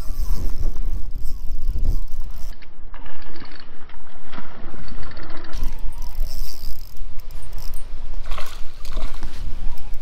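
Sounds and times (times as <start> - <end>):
wind buffeting microphone: 0.0 - 2.6.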